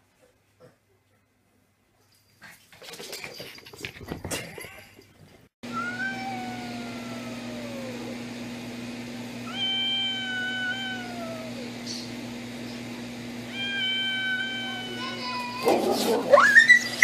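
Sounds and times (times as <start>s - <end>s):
cat yowling: 5.7s - 8.2s, 9.4s - 11.7s, 13.5s - 17.0s.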